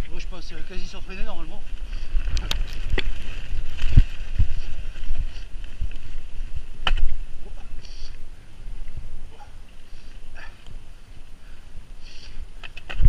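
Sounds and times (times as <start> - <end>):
wind rumble on microphone: 0.0 - 13.0
bike knocking and rattling: 0.5 - 7.6, 12.5 - 13.0.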